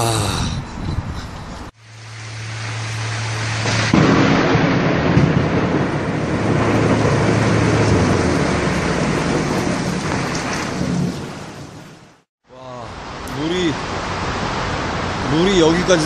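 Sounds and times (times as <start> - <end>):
heavy rain falling: 1.8 - 16.0
thunder rumbling: 2.6 - 12.2.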